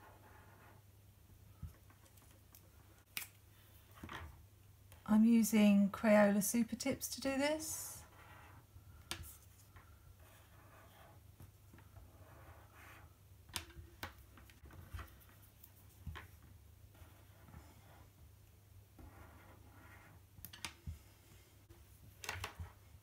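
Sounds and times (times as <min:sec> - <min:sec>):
markers drawing on paper: 0:08.0 - 0:13.2, 0:16.9 - 0:18.2, 0:19.0 - 0:20.2.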